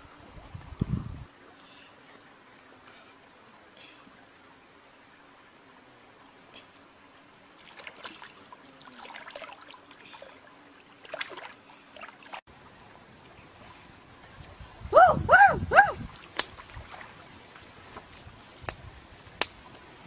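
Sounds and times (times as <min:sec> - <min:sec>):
stream trickling: 0:00.0 - 0:20.0
water splashing and sloshing: 0:07.4 - 0:14.9, 0:16.0 - 0:20.0.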